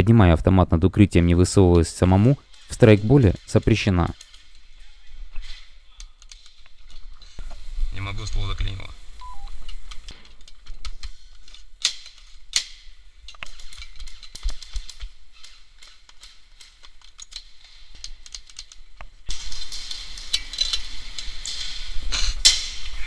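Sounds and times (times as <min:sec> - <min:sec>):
rustling noise: 0:01.9 - 0:23.0
airsoft guns clicking and snapping: 0:05.4 - 0:07.4, 0:09.7 - 0:21.6, 0:22.4 - 0:22.9.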